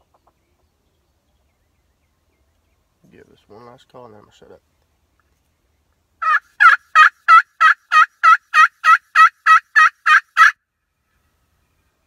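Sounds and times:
turkey call hen yelps: 6.2s - 10.6s.

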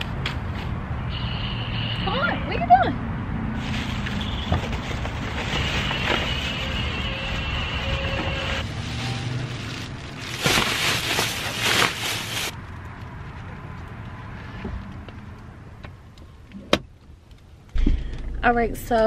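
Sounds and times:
plastic bags rustling: 3.6s - 12.6s.

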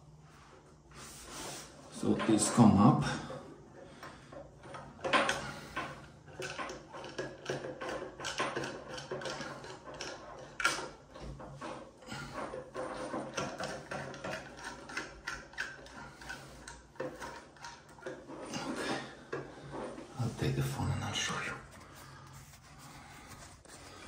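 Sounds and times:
metallic clicks and scrapes: 4.6s - 20.2s.

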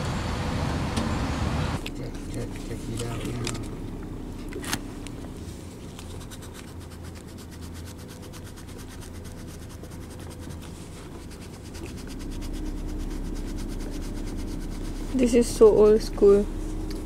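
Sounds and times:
low steady hum: 0.0s - 17.0s
coin scratching paper card: 6.0s - 15.3s.

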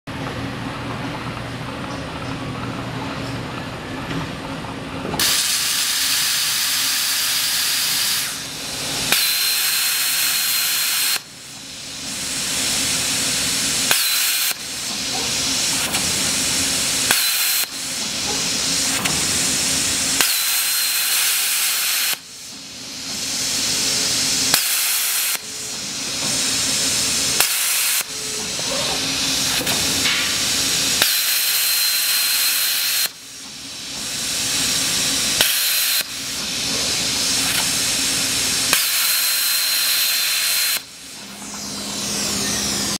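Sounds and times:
plasma arc hissing: 5.2s - 42.9s
sharp click of arc firing: 13.9s - 14.6s, 17.1s - 17.8s, 20.2s - 22.2s, 24.5s - 25.4s, 27.4s - 28.1s, 31.0s - 33.2s, 35.4s - 36.1s, 38.7s - 40.9s
low machine hum: 40.8s - 42.9s.

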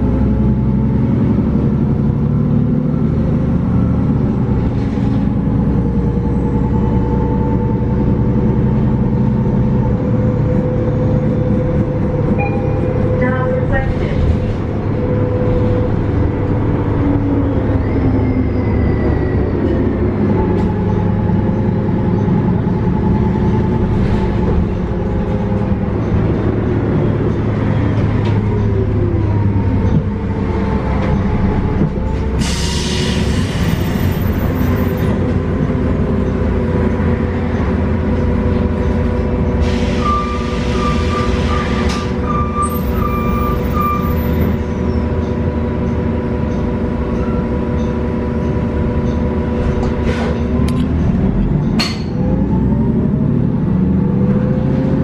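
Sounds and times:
bus engine whine: 0.0s - 55.0s
short beeps: 12.4s - 12.9s.

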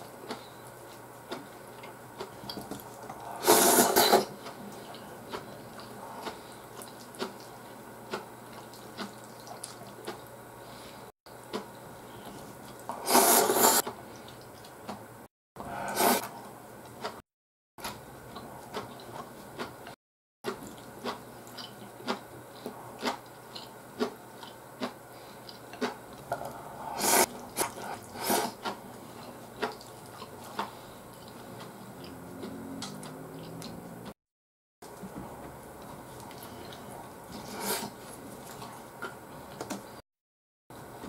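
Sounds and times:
person slurping noodles: 3.2s - 4.3s, 12.9s - 13.8s, 15.7s - 16.3s, 26.4s - 28.6s, 37.4s - 38.0s
wet chewing clicks: 4.4s - 10.3s, 27.4s - 34.2s.

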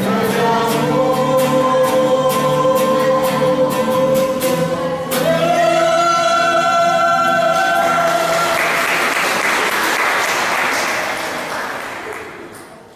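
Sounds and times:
vocal group singing: 0.0s - 9.0s
acoustic guitars: 0.0s - 12.9s
audience applause: 7.6s - 12.9s.

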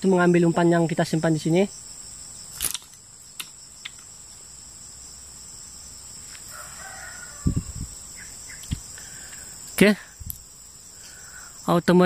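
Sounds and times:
high insect drone: 0.0s - 12.0s
rooster crowing: 6.4s - 8.3s.

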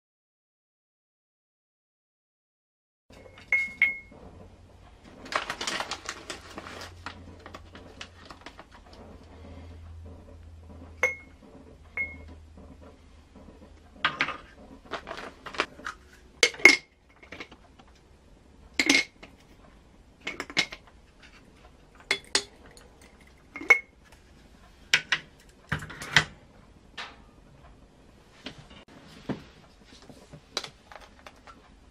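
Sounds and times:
glass clinking and knocking: 3.2s - 4.1s, 11.0s - 11.3s, 22.0s - 23.9s.

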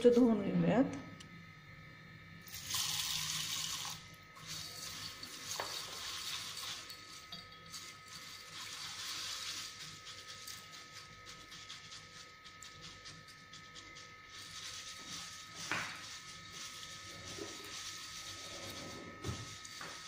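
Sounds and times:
water poured into steel bowl: 2.4s - 10.7s.

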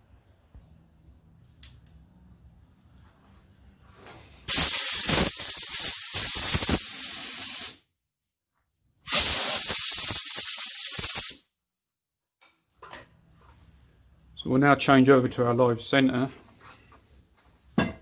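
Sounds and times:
air nozzle hissing blasts: 4.5s - 7.8s, 9.1s - 11.3s.

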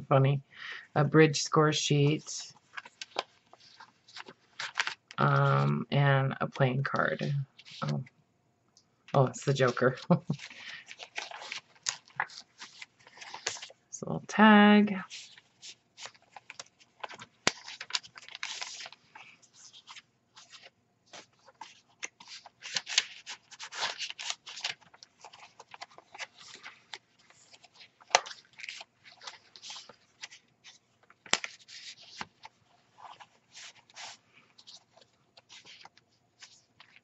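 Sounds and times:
paper rustling and crinkling: 1.9s - 5.7s, 6.8s - 8.1s, 9.2s - 13.9s, 15.0s - 37.0s
sharp paper snaps: 16.0s - 18.9s, 31.2s - 32.3s.

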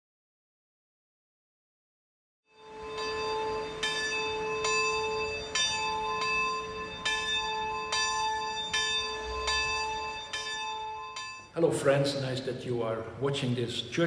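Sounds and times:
church bell ringing: 2.6s - 12.4s.

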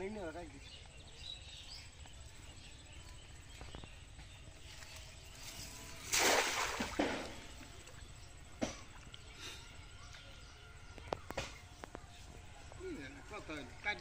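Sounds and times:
cast net splashing into water: 5.8s - 7.7s.

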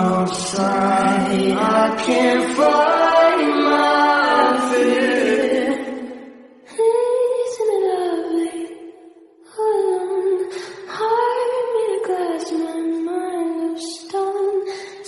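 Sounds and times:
slow song with sliding sung notes: 0.0s - 6.4s.

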